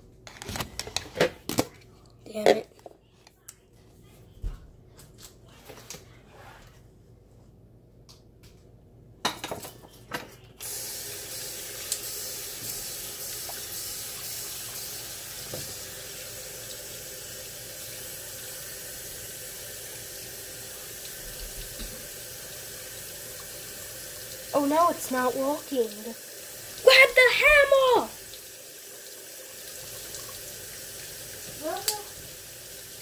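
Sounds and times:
faucet water running onto ice bag: 0:10.6 - 0:33.0.

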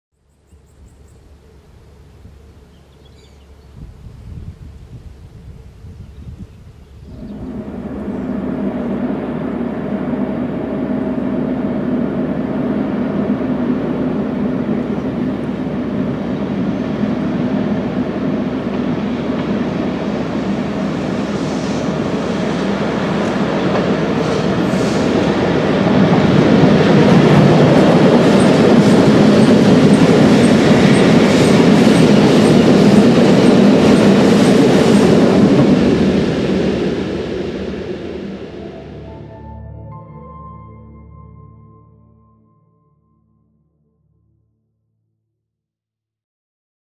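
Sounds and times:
locomotive mechanical hum: 0:00.5 - 0:40.2
train wheels clicking: 0:17.0 - 0:38.1.

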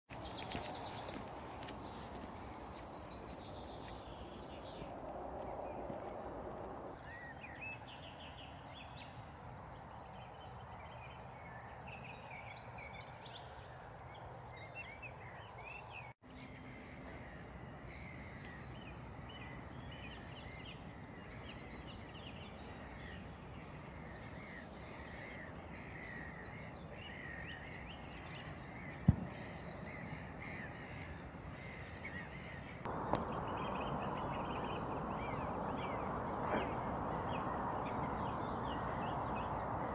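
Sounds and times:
birds chirping: 0:00.1 - 0:39.9
low outdoor rumble: 0:32.9 - 0:39.9.

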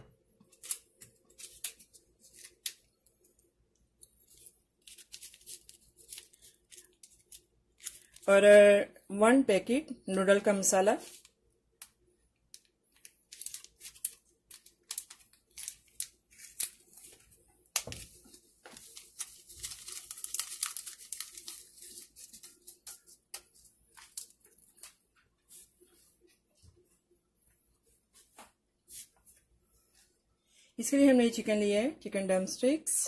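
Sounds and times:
plastic sachet crinkling and tearing: 0:00.5 - 0:08.3, 0:12.5 - 0:25.0.

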